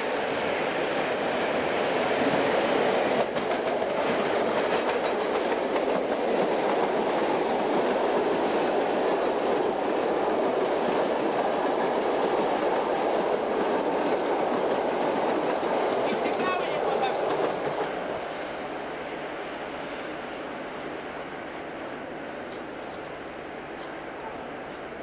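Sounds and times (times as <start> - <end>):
train coaches rumbling past: 0.0 - 25.0
wheels clacking over rail joints: 3.2 - 18.0.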